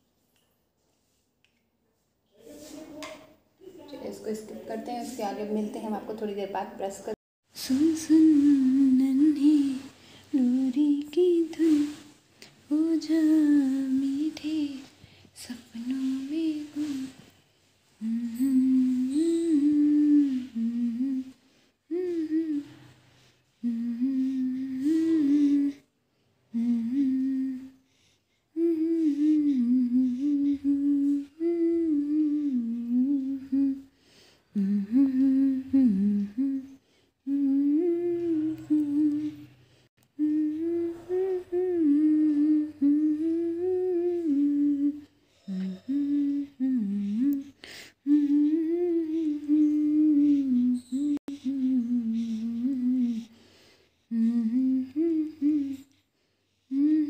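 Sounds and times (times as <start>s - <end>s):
woman humming a lullaby: 7.6s - 17.3s, 18.0s - 25.9s, 26.5s - 27.8s, 28.6s - 33.9s, 34.6s - 39.5s, 40.1s - 53.4s, 54.0s - 56.0s, 56.7s - 57.0s.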